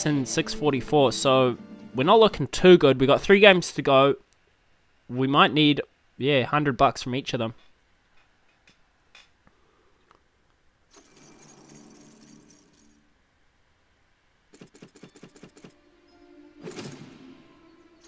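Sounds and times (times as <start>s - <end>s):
slot reels spinning jingle: 11.0s - 13.0s.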